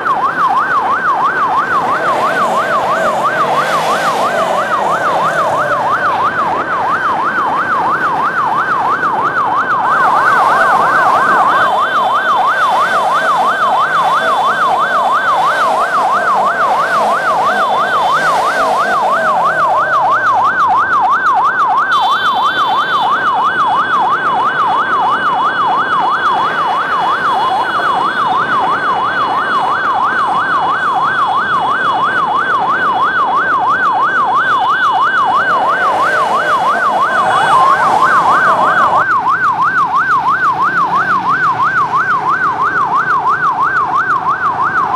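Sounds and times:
electronic siren yelping: 0.0s - 44.9s
motorcycle convoy: 0.0s - 44.9s
steady higher tones: 1.6s - 6.9s, 10.0s - 20.6s, 35.0s - 39.0s.

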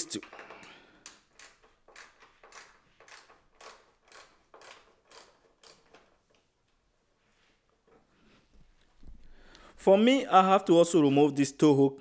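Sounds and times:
screwdriver rasping clicks: 0.2s - 6.4s.

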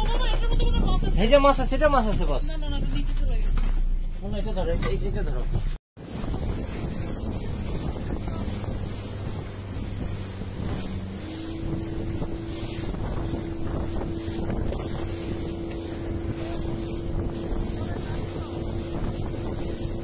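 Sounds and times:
motorboat engine running: 0.0s - 20.0s
water rushing past hull: 6.0s - 20.0s
wind buffeting microphone: 6.0s - 20.0s.

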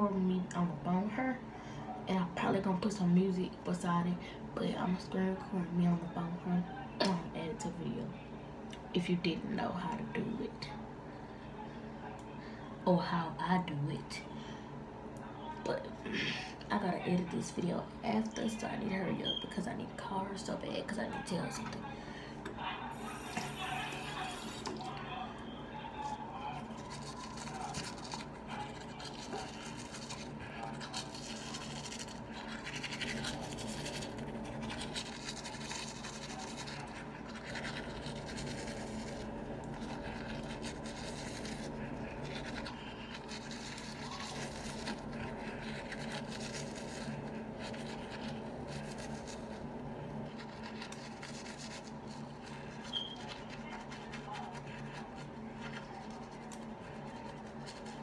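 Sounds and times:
steady low hum: 0.0s - 58.0s
toothbrush scrubbing teeth: 23.0s - 25.1s, 26.0s - 58.0s.

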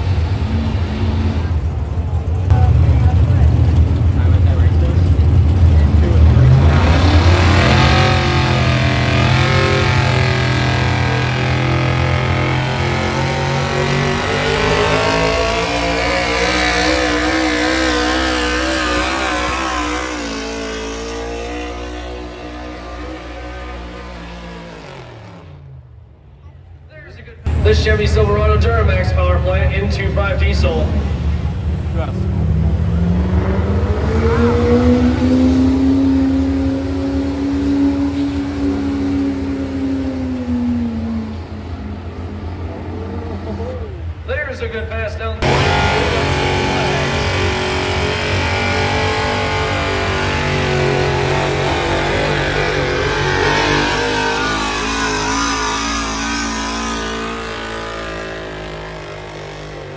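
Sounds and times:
pickup truck engine at full throttle: 0.0s - 26.2s, 45.4s - 59.9s.

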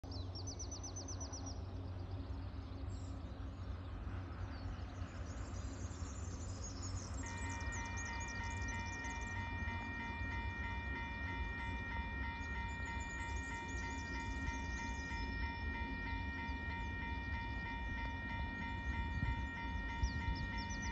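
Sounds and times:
birds chirping: 0.2s - 20.9s
level-crossing warning bell ringing: 7.2s - 20.9s.

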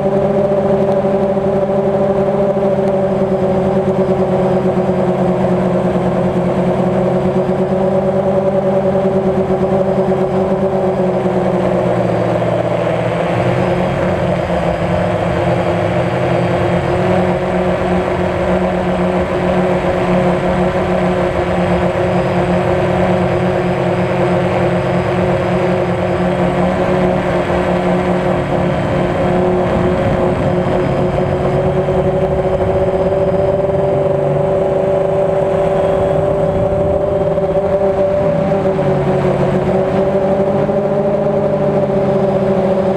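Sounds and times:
drone motors humming: 0.0s - 42.9s.

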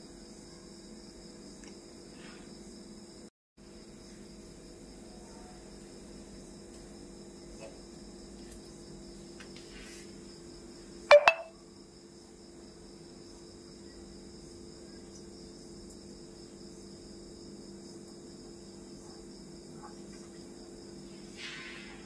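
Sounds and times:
crickets trilling: 0.0s - 22.0s
loud double sound with ringing: 11.1s - 11.5s.

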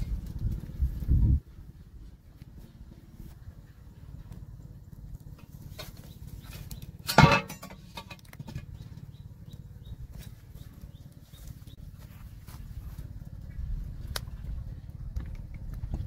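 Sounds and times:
low rumble: 0.0s - 16.0s
wok clanking onto metal stove: 7.1s - 8.2s.

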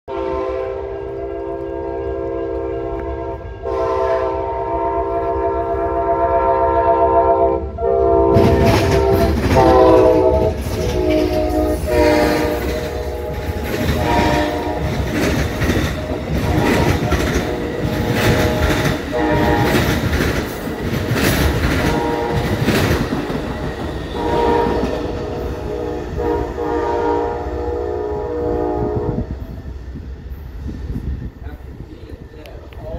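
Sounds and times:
train horn blasts: 0.1s - 20.2s, 21.4s - 22.9s, 24.1s - 29.6s
train passing with loud rumble: 0.1s - 32.9s
wheels clattering on rails: 8.3s - 25.4s.

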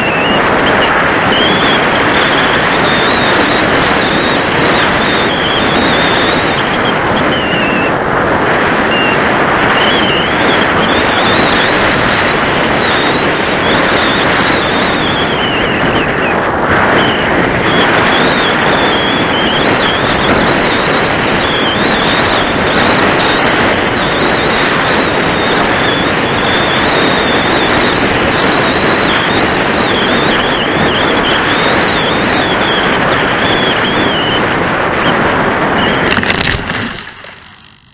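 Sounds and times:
wind buffeting microphone: 0.0s - 37.9s
rustling crunch in grass: 36.1s - 37.9s.

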